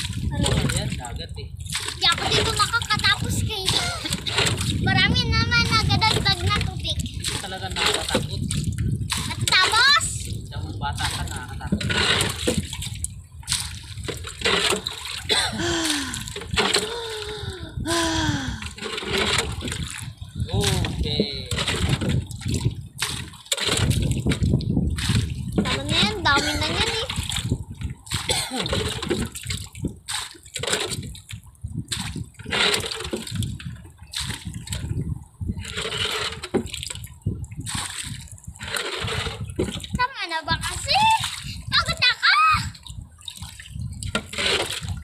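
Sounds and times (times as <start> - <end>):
seawater splashing against boat: 0.0 - 45.0.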